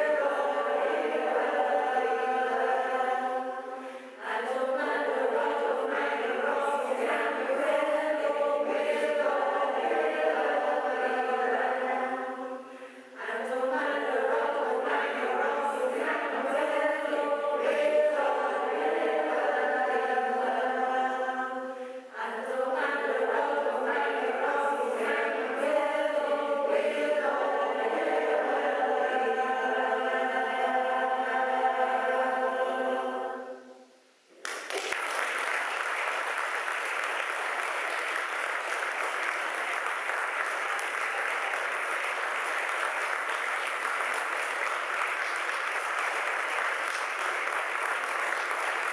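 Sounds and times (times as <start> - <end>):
choir singing in harmony: 0.0 - 34.0
audience applause: 34.4 - 48.9.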